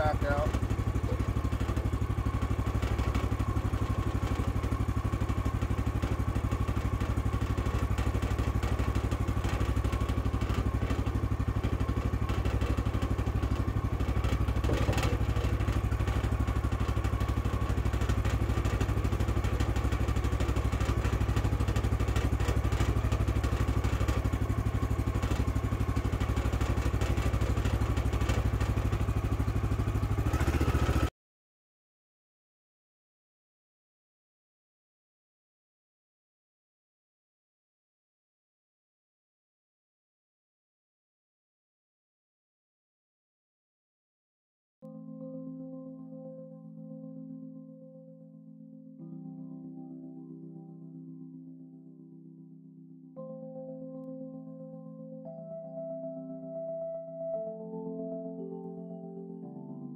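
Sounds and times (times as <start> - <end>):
gasoline engine running steadily: 0.0 - 31.1.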